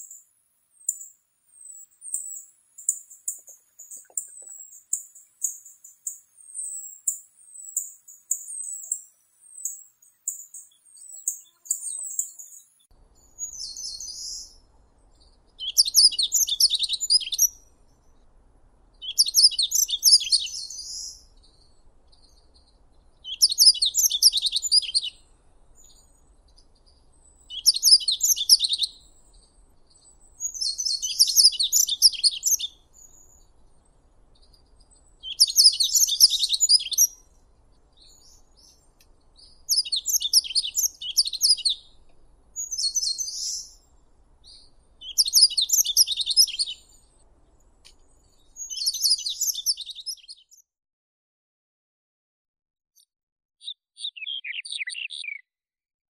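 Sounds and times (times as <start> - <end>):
bunting singing: 19.0 - 42.0, 42.6 - 47.0, 53.6 - 55.4.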